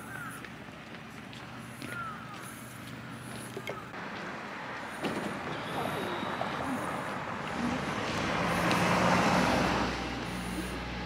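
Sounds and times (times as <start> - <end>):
motor vehicle engine and tyres: 0.0 - 11.0
faint voices: 5.0 - 8.8.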